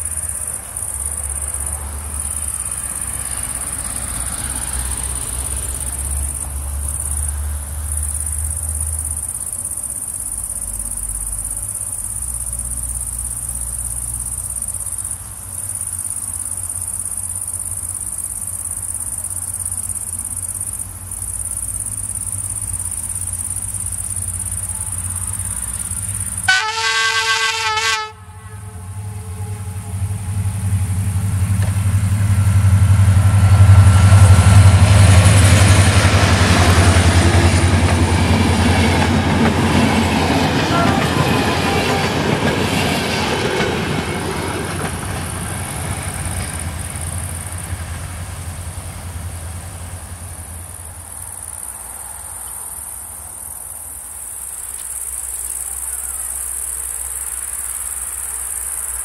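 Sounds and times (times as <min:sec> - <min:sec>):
crickets chirping: 0:00.0 - 0:59.0
distant diesel rumble: 0:00.0 - 0:59.0
train passing: 0:00.0 - 0:59.0
locomotive horn blast: 0:26.4 - 0:30.6, 0:40.4 - 0:42.6.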